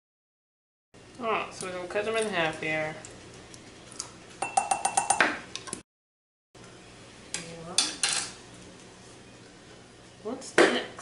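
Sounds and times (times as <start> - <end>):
spoon clinking on glass jars: 4.4 - 5.3.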